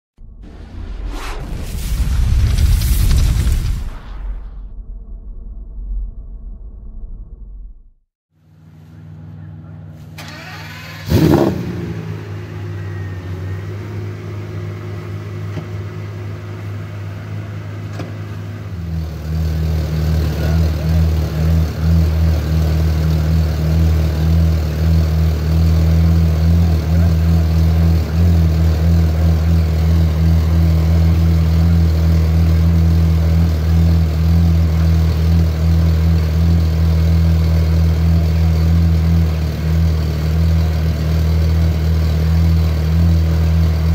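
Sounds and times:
car engine idling: 8.4 - 43.9
car engine rev: 9.1 - 43.9.

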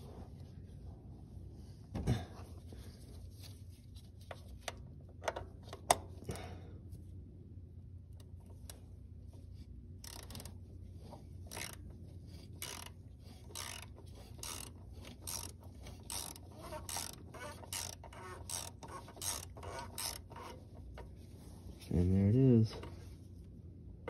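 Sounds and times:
ratchet wrench clicking: 10.0 - 10.5, 11.5 - 11.8, 12.6 - 20.6.

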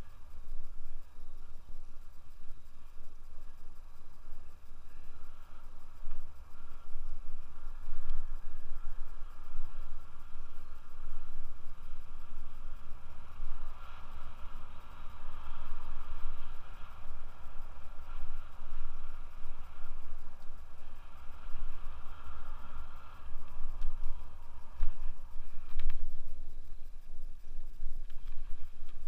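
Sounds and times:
bike tyres rolling on asphalt: 0.0 - 29.0
wind buffeting microphone: 0.0 - 29.0
light clicks: 23.0 - 29.0.

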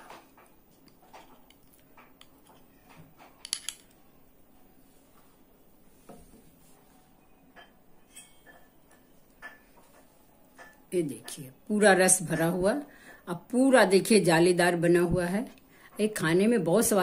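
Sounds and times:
spoon clinking on glass bowl: 7.6 - 9.7.

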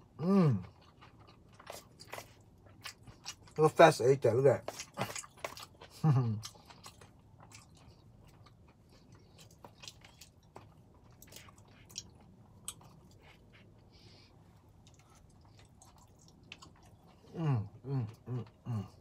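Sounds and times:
person chewing noodles: 0.0 - 3.8, 4.4 - 19.0.

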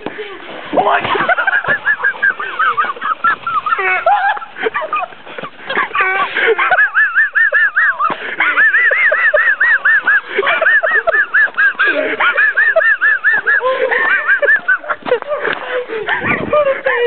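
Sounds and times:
person laughing high-pitched: 1.0 - 17.0.

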